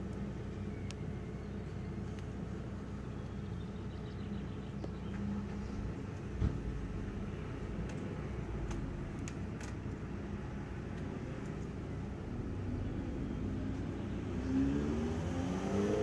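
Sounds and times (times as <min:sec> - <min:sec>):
vehicle engine humming: 0:00.0 - 0:16.0
thump: 0:06.4 - 0:06.7.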